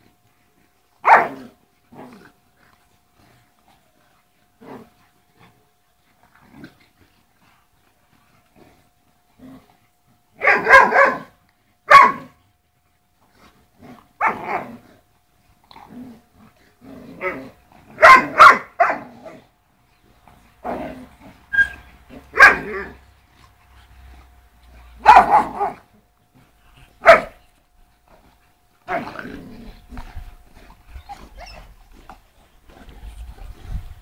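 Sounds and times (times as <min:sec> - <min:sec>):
dogs barking and growling: 0:00.0 - 0:12.5, 0:13.2 - 0:34.0.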